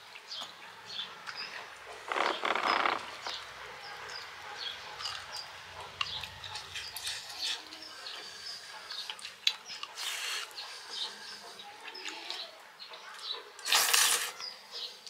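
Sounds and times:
wet chewing smacks: 5.0s - 12.4s
person slurping food: 10.0s - 11.1s, 13.6s - 14.4s.

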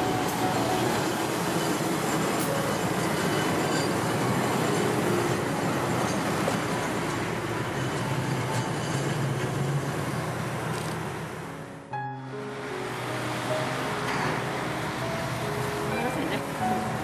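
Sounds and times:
train wheels clattering on rails: 0.0s - 11.3s
locomotive engine hum: 0.0s - 17.0s.

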